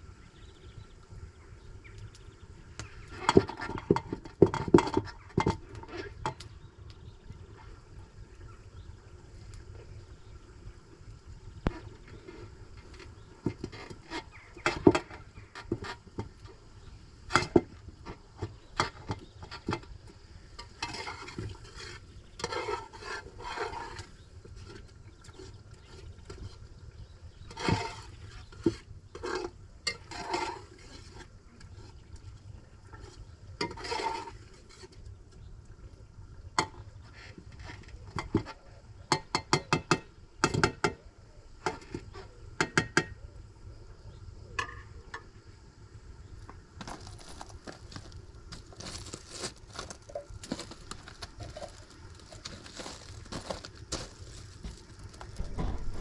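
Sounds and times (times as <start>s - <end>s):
utensils scraping pots: 20.6s - 26.6s, 27.3s - 32.0s, 32.9s - 35.0s, 46.9s - 56.0s.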